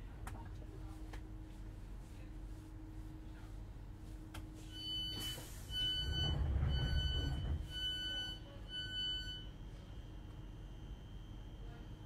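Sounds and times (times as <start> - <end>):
electronic door warning beeps: 4.7 - 9.6.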